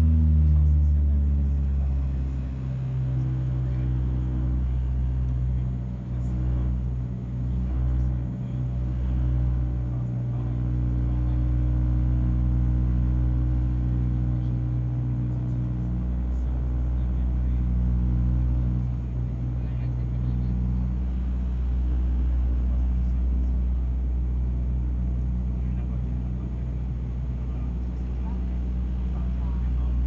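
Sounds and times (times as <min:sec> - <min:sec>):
turboprop engines droning: 0:00.0 - 0:30.0.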